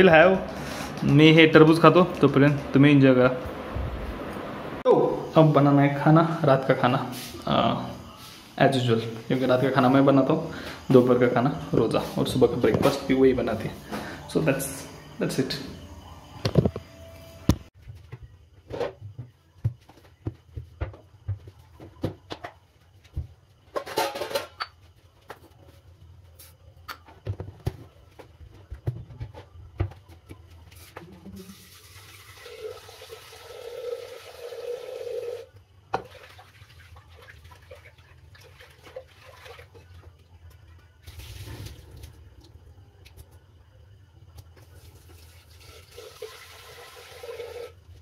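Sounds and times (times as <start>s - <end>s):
pots and utensils clinking: 23.7s - 24.8s
water running from tap: 31.4s - 40.1s, 44.8s - 47.8s.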